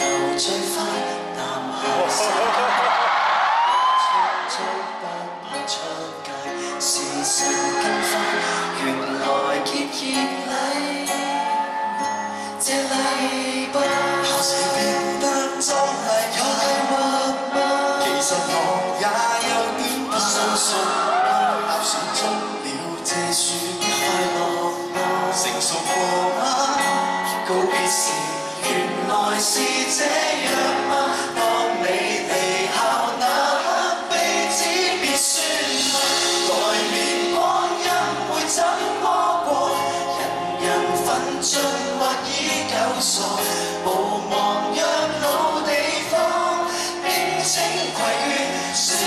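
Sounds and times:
person singing: 0.0 - 3.0, 3.9 - 49.0
live band playing: 34.0 - 42.1.

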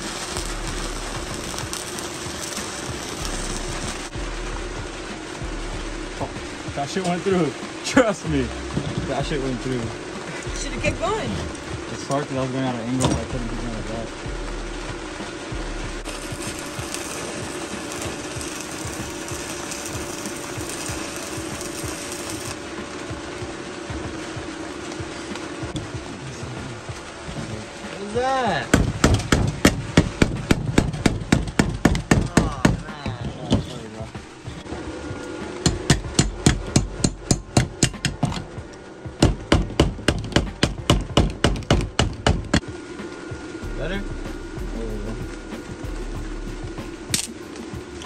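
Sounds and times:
welding arc crackling and buzzing: 0.0 - 48.0
hammering: 16.0 - 22.6, 28.7 - 34.3, 35.6 - 42.7.

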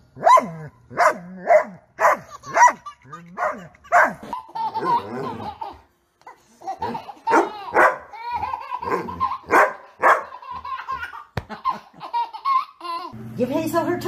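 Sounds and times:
dog barking: 0.2 - 2.8, 3.4 - 4.2, 7.3 - 8.1, 8.9 - 10.3
baby laughing: 2.0 - 13.2.

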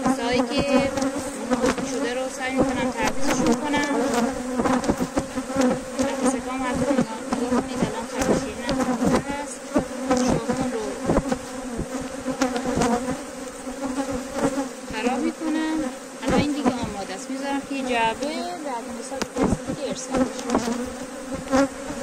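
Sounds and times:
honeybees buzzing: 0.0 - 22.0.

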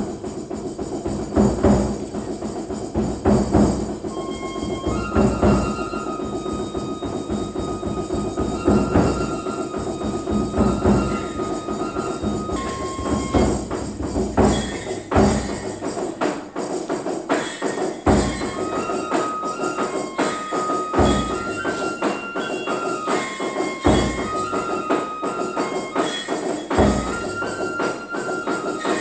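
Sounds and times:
deep drum beat: 0.0 - 16.2
fast clattering hand percussion: 0.0 - 29.0
high flute melody: 4.0 - 15.8, 18.1 - 29.0.

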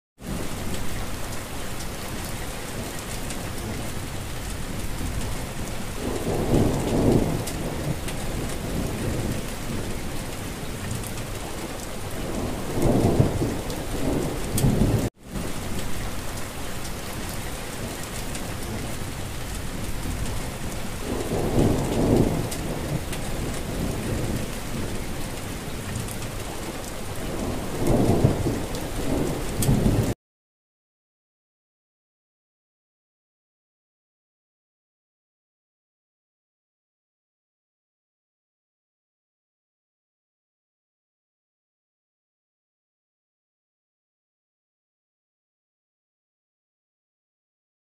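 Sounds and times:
steady rain: 0.2 - 30.2
thunder rolling: 3.6 - 16.4, 17.0 - 30.2.

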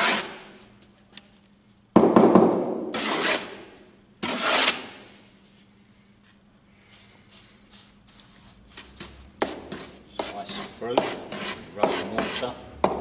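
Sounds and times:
trowel scraping mortar: 3.0 - 3.6, 4.2 - 5.0, 8.8 - 12.6.

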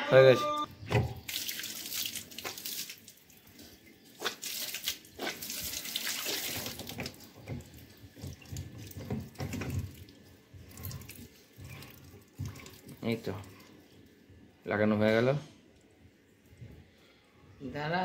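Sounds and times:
water gushing and splashing: 4.2 - 13.2.

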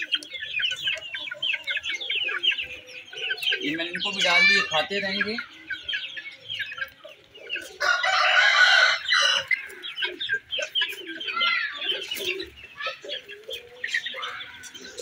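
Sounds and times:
young chickens peeping: 0.0 - 15.0
harsh chicken call: 3.6 - 5.5, 7.7 - 9.8.

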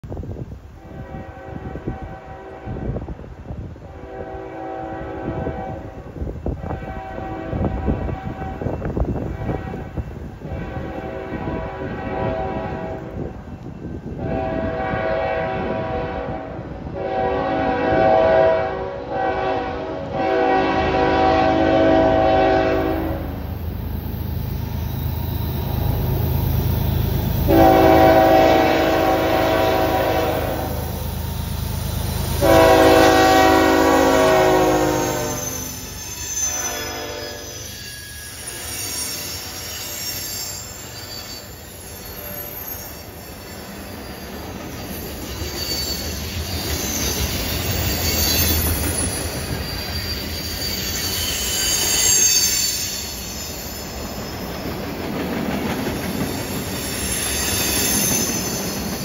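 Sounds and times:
locomotive air horn blasts: 0.7 - 3.1, 3.8 - 13.2, 14.2 - 23.4, 27.4 - 31.0, 32.3 - 35.8, 36.5 - 37.6
locomotive engine and wheels rumble: 5.0 - 17.2, 17.8 - 59.0.

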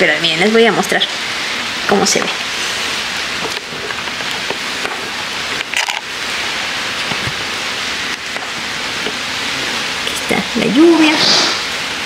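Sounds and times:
steady rain hiss: 0.0 - 12.0.

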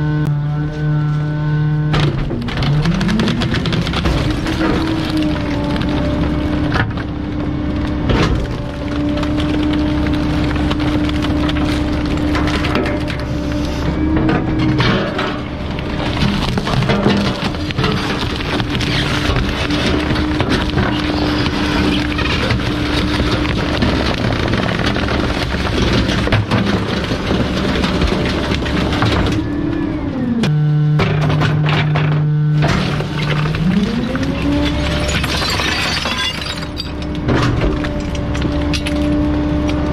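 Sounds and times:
truck engine running: 0.0 - 31.2
rattling and clatter: 1.9 - 7.2, 8.1 - 29.4, 31.0 - 39.2
wood cracking and splintering: 1.9 - 39.9
steady machine hum: 3.2 - 39.9
steady hum: 30.4 - 36.6.

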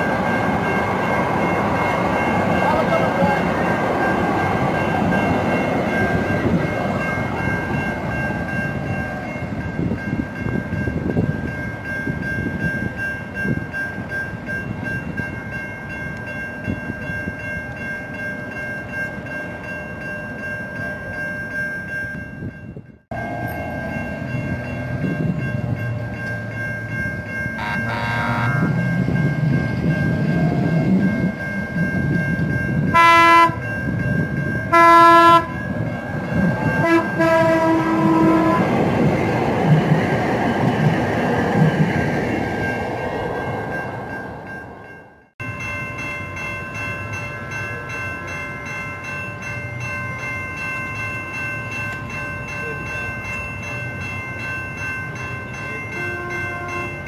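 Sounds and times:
light-rail cars rumbling on rails: 0.0 - 57.0
train horn blast: 23.1 - 24.1, 27.6 - 28.8, 32.9 - 33.6, 34.7 - 35.6, 36.8 - 38.8, 56.0 - 56.9.

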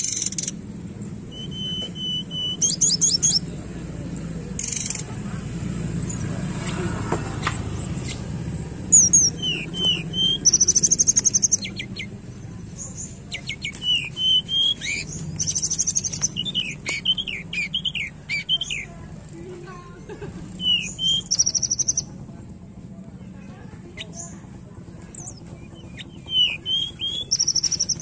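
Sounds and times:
bird whistling: 0.0 - 0.6, 1.2 - 3.5, 8.9 - 12.2, 12.8 - 18.9, 20.6 - 22.1, 25.1 - 28.0
high buzzy bird trills: 0.0 - 3.6, 8.0 - 19.0, 20.6 - 22.2, 25.1 - 28.0.

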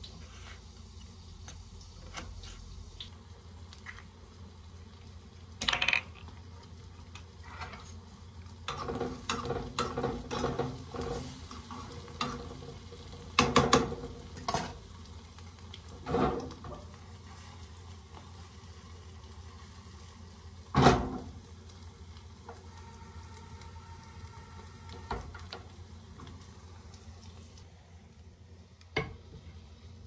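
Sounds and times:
pan and utensils scraping: 7.4 - 8.0, 8.7 - 12.8.

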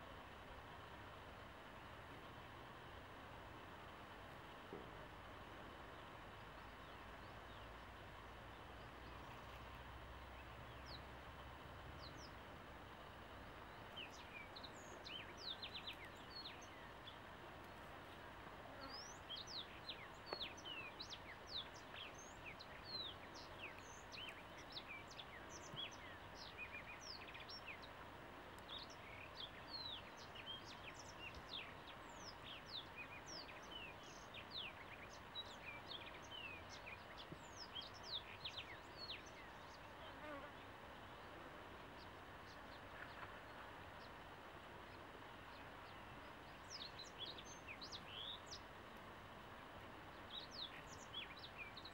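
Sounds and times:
faint hum of bees: 0.0 - 51.9
birds chirping: 12.0 - 48.7, 50.1 - 51.9.

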